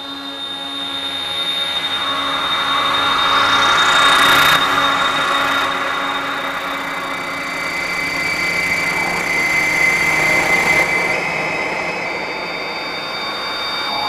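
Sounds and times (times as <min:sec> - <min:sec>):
held high tones: 0:12.3 - 0:14.0.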